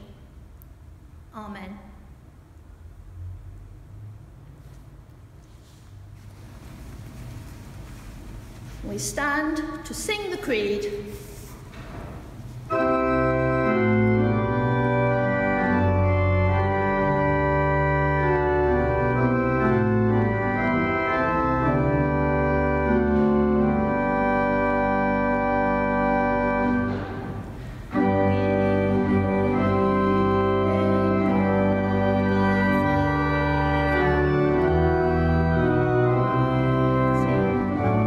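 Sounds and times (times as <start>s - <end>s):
organ playing sustained chords: 12.6s - 38.0s.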